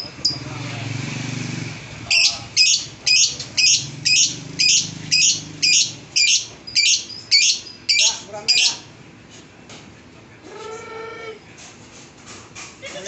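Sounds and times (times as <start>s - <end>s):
lovebird chirping: 0.0s - 0.5s, 2.1s - 8.8s.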